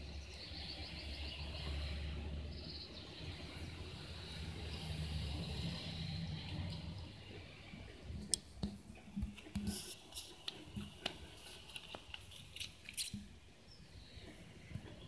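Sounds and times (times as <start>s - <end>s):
low background noise: 0.0s - 15.0s
plastic card clicks and scrapes: 9.2s - 13.3s.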